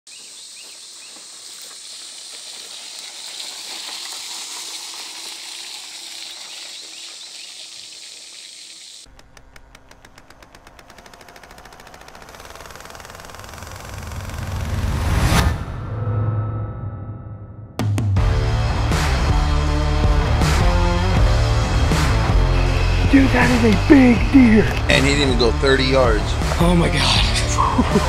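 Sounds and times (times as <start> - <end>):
outdoor hiss: 0.1 - 11.4
rapid ticking: 7.0 - 14.9
intro music: 13.5 - 28.0.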